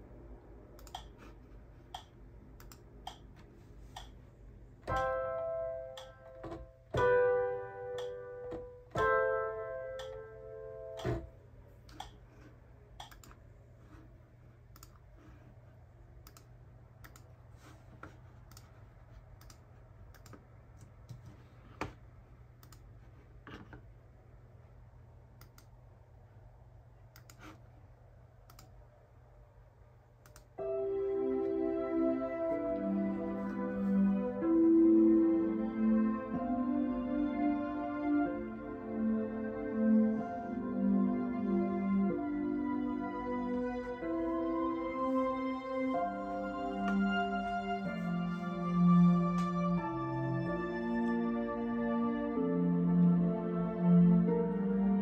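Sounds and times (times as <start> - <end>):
computer mouse and key clicks: 0.8 - 4.2, 13.0 - 13.4, 14.7 - 15.2, 16.2 - 17.3, 18.0 - 22.0, 22.6 - 23.9, 25.4 - 25.7, 27.1 - 27.6, 28.4 - 28.8
sustained musical chords: 4.0 - 12.2, 30.6 - 55.0.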